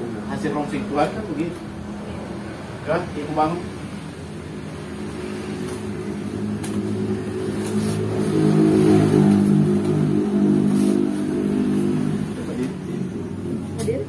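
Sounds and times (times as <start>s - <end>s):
motor vehicle engine running: 4.0s - 14.0s.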